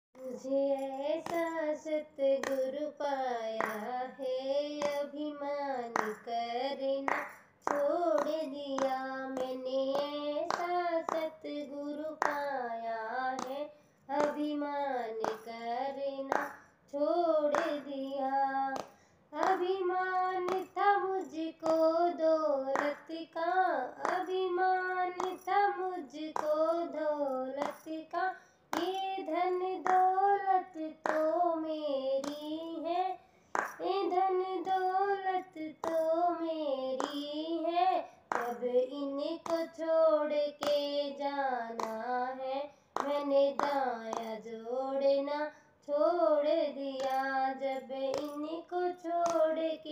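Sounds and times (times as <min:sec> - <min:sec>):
high voice singing devotional song: 0:00.2 - 0:49.9
hands clapping a beat: 0:01.2 - 0:01.6, 0:02.4 - 0:02.8, 0:03.6 - 0:04.0, 0:04.8 - 0:05.2, 0:05.9 - 0:06.3, 0:07.0 - 0:12.6, 0:13.3 - 0:15.6, 0:16.3 - 0:16.6, 0:17.5 - 0:18.2, 0:18.8 - 0:19.8, 0:20.4 - 0:22.0, 0:22.7 - 0:23.2, 0:24.0 - 0:31.5, 0:32.2 - 0:32.7, 0:33.6 - 0:36.2, 0:36.9 - 0:37.4, 0:38.3 - 0:38.7, 0:39.4 - 0:39.9, 0:40.6 - 0:41.2, 0:41.8 - 0:42.1, 0:43.0 - 0:44.5, 0:47.0 - 0:47.4, 0:48.1 - 0:48.4, 0:49.1 - 0:49.9.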